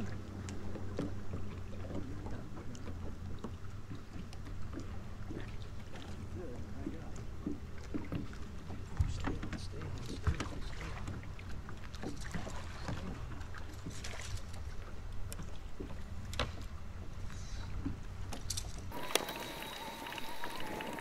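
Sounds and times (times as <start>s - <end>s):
wind and water rumble: 0.0s - 21.0s
thin steady whine: 18.9s - 21.0s.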